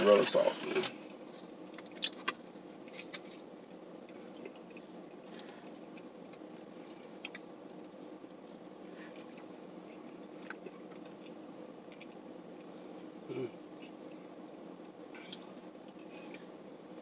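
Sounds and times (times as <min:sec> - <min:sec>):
eating clicks and mouth noises: 0:04.1 - 0:08.5.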